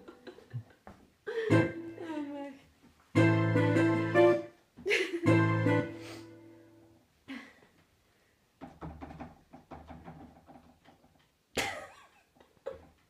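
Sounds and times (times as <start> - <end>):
electric keyboard chord: 3.2 - 4.5, 5.3 - 6.3.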